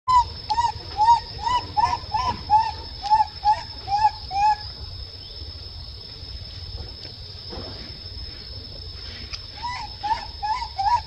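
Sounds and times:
baby monkey coo calls: 0.1s - 4.8s, 9.5s - 11.0s.

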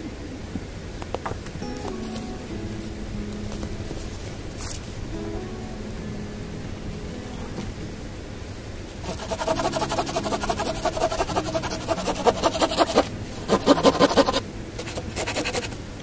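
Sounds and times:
hand saw rasping through log: 9.1s - 15.7s.

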